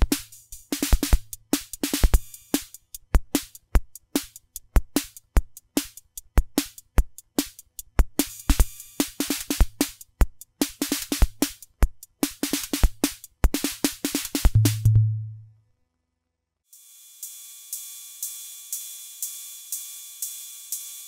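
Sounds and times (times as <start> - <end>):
hissy hi-hat and cymbal hits: 0.0 - 15.1, 16.7 - 21.0
kick drum thumps: 14.4 - 15.2.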